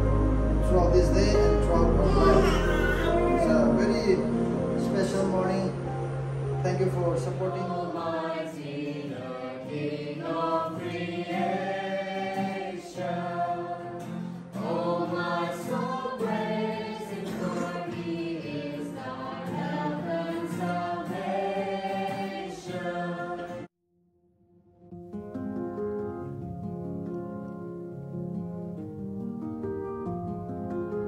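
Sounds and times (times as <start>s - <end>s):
group singing a hymn: 0.0s - 5.6s, 6.8s - 23.7s.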